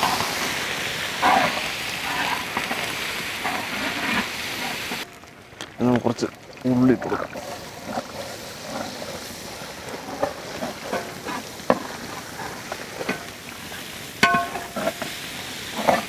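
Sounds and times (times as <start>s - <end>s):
onions sizzling in hot oil: 0.0s - 16.0s
ringing metal clang: 14.2s - 14.8s
spoon knocking on pan: 14.2s - 14.8s
metal spoon scraping pan: 14.2s - 15.1s.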